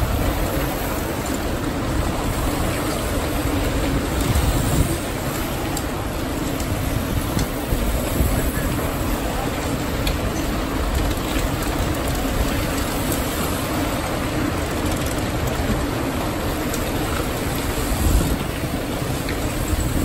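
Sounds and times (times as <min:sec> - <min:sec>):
bikes rattling over cobblestones: 0:00.0 - 0:20.0.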